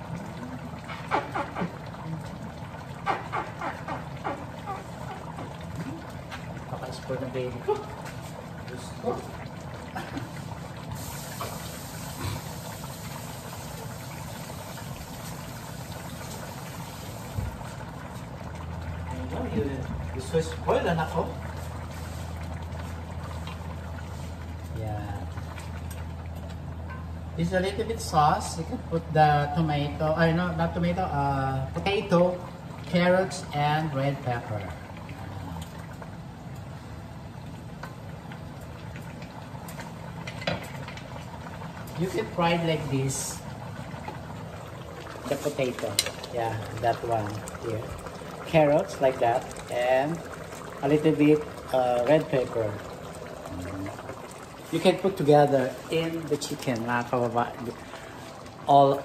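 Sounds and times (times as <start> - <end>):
sauce bubbling and sizzling: 0.0 - 59.0
water running into a steel sink: 45.1 - 58.9.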